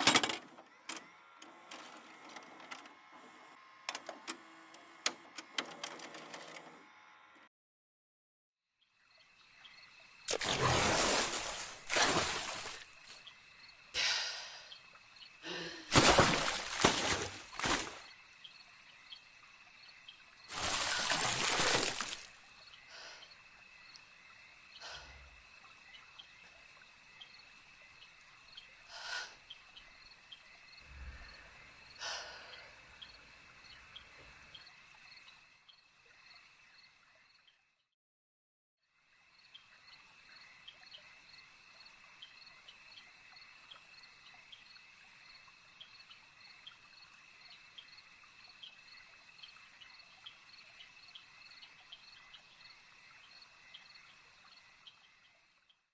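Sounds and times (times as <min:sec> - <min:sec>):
night insects chirping: 0:08.8 - 0:37.6, 0:39.0 - 0:55.6
water splashing and surging: 0:10.3 - 0:13.2, 0:15.9 - 0:18.1, 0:20.5 - 0:22.4
faint chirps: 0:17.7 - 0:37.8.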